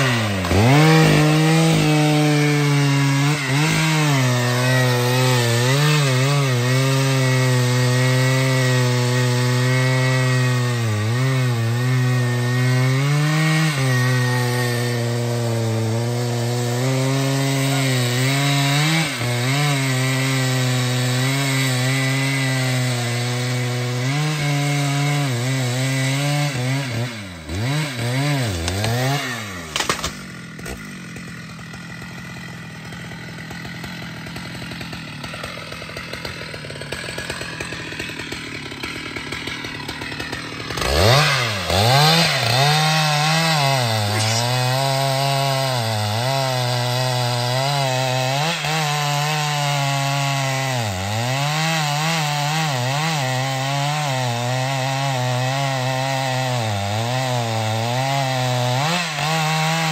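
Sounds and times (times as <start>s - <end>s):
chainsaw cutting wood: 0.0s - 59.9s.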